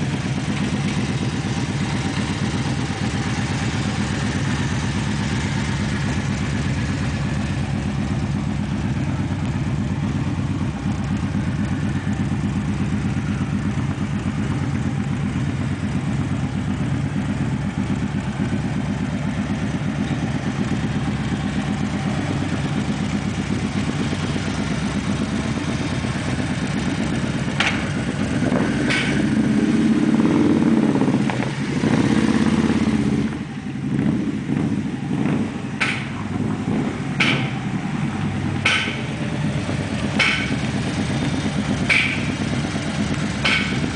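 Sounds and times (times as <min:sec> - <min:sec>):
motorcycle idling: 0:00.0 - 0:43.9
sharp knocks: 0:27.6 - 0:27.9, 0:28.8 - 0:29.3, 0:35.8 - 0:36.2, 0:37.2 - 0:37.7, 0:38.6 - 0:39.2, 0:40.2 - 0:40.6, 0:41.8 - 0:42.4, 0:43.4 - 0:43.9.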